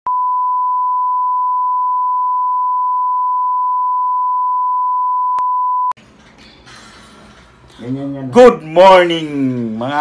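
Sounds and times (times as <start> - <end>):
steady test tone beep: 0.1 - 6.0.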